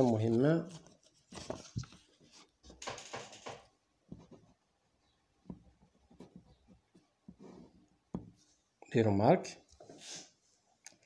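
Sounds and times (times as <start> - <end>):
paper rustling: 0.0 - 2.8.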